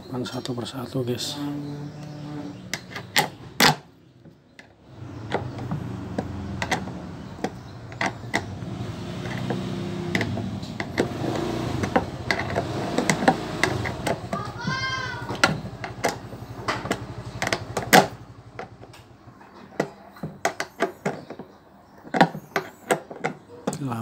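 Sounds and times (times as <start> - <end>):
low mechanical hum: 1.1 - 19.6
spanner clicking and scraping on bolts: 4.6 - 23.5.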